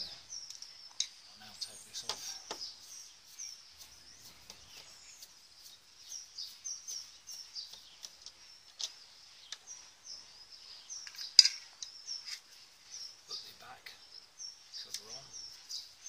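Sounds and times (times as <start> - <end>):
small birds chirping: 0.0 - 16.0.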